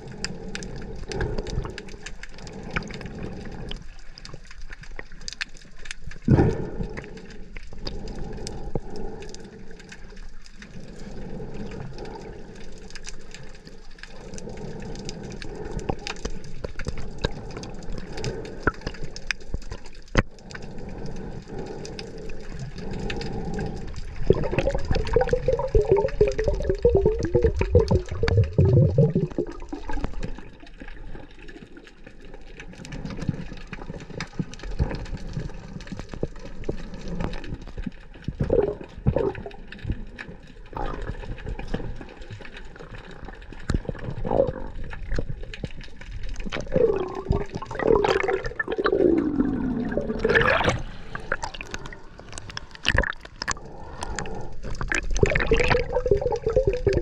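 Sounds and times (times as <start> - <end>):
water sloshing and bubbling: 0.0 - 57.0
knocks and gurgles: 24.3 - 30.4, 46.4 - 53.6, 54.8 - 57.0.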